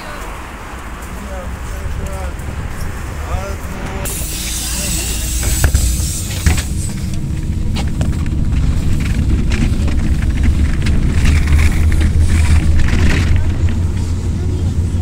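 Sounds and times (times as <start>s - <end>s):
bus engine drone: 0.0s - 15.0s
knocks and rattles: 5.6s - 14.2s.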